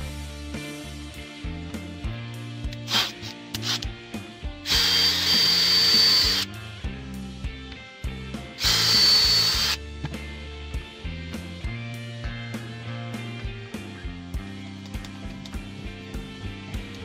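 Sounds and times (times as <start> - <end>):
power drill drilling into wood: 2.9 - 3.8, 4.6 - 6.5, 8.6 - 9.8.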